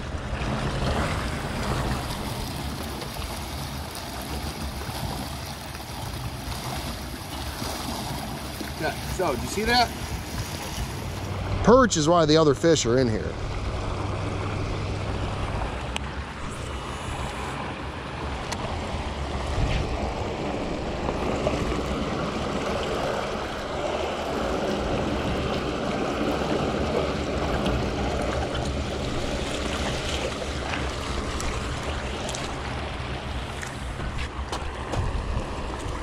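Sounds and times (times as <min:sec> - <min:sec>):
wind on microphone: 0:13.3 - 0:36.0.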